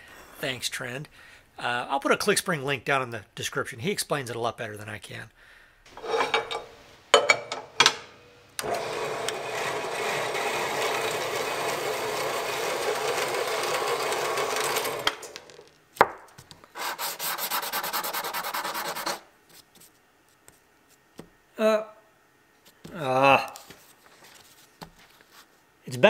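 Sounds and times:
saw cutting through metal: 0:08.6 - 0:15.3
metal scraping on sandpaper: 0:16.8 - 0:19.9.

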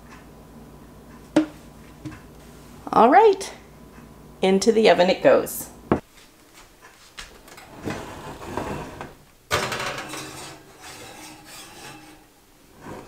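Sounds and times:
oven door opening and shutting: 0:07.4 - 0:13.0
glass pan sliding on metal rack: 0:07.7 - 0:13.0.

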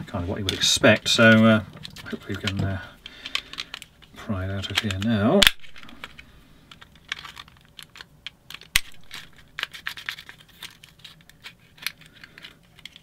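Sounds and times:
hard plastic parts clicking: 0:00.4 - 0:13.0
sharp plastic click: 0:04.7 - 0:05.8.

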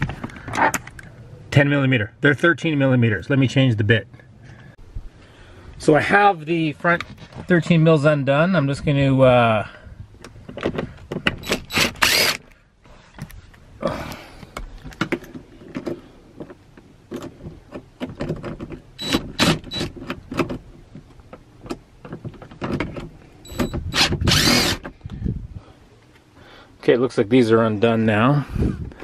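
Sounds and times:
cordless drill whirring: 0:11.4 - 0:12.5, 0:23.5 - 0:24.8.

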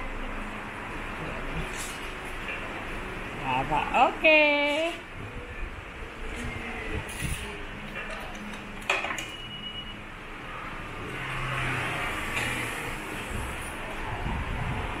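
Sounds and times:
short high beep: 0:09.3 - 0:10.0.

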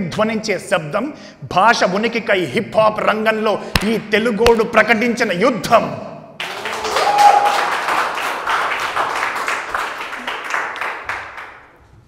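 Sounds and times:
audience applause: 0:06.4 - 0:11.7.

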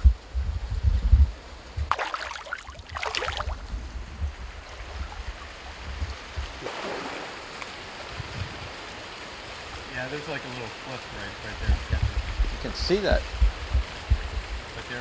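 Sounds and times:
water splashing: 0:01.8 - 0:11.6
stream rushing: 0:01.9 - 0:11.8.

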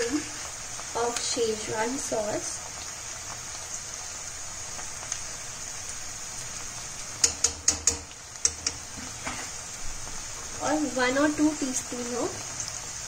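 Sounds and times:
vegetables frying in oil: 0:00.0 - 0:13.0
metal spoon clinking on pan: 0:07.2 - 0:08.8.

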